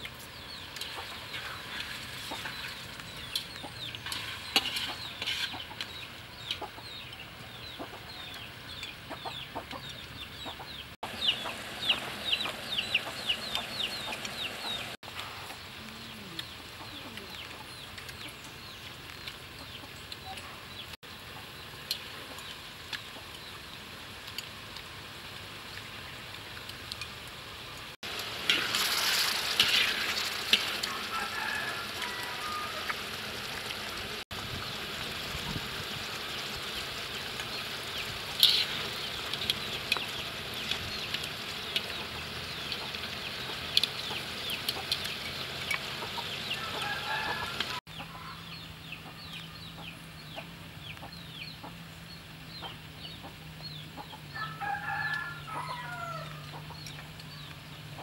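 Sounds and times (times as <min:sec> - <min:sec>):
chickens clucking: 0:00.0 - 0:21.6, 0:37.2 - 0:51.8, 0:52.5 - 0:58.0
wok sizzling: 0:00.0 - 0:47.9.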